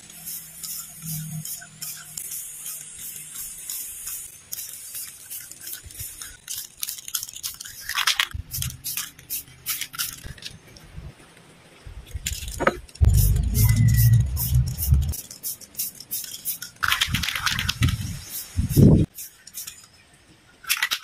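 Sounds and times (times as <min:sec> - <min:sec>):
spray can ball rattling: 0:00.0 - 0:10.5, 0:12.2 - 0:19.9
loud low rumble: 0:13.0 - 0:15.2.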